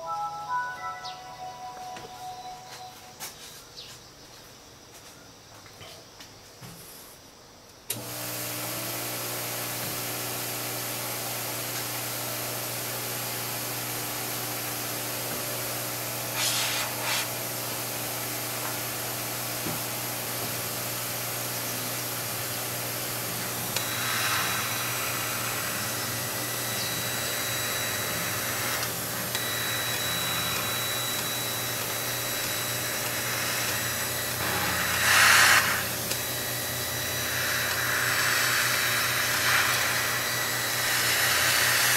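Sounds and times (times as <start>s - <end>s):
high whine: 0.0s - 3.3s, 23.4s - 41.9s
fan hum and hiss: 3.0s - 41.9s
loud hissing burst: 16.3s - 17.3s, 23.7s - 27.2s, 34.2s - 36.2s, 37.2s - 41.9s.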